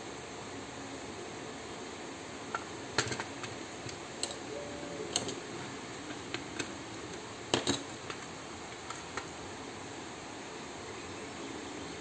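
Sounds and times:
steady background hiss: 0.0s - 12.0s
plastic parts clicking and knocking: 2.5s - 4.4s, 5.1s - 6.8s, 7.5s - 9.3s.

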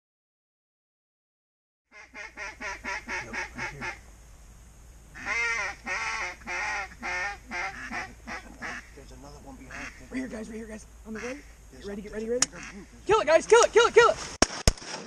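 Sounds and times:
duck quacking: 1.9s - 4.0s, 5.2s - 9.0s, 9.6s - 10.4s, 11.1s - 11.6s, 12.4s - 13.0s.

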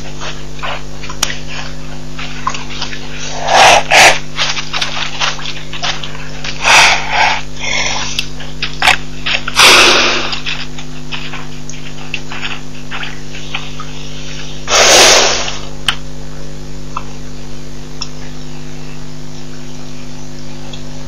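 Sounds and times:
rhino snorting: 0.0s - 15.7s
electrical mains hum and hiss: 0.0s - 21.0s.

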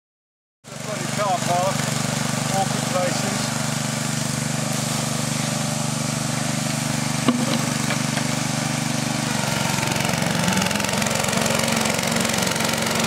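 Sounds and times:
small engine running: 0.7s - 13.0s
sharp knock: 7.3s - 8.3s.

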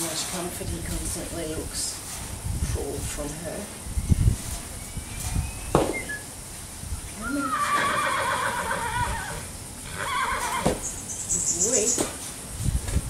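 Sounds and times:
sharp knock: 5.7s - 6.0s
horse whinnying: 7.2s - 10.8s.

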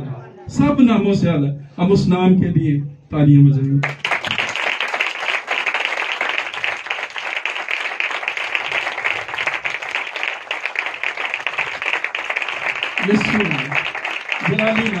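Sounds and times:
congregation clapping: 3.8s - 15.0s.

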